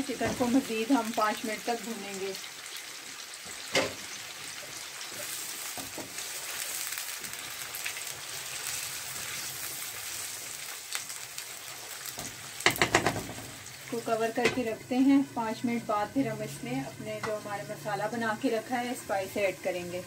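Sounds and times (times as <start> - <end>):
chicken sizzling in hot oil: 0.0 - 20.0
spatula knocking against pan: 12.6 - 13.4.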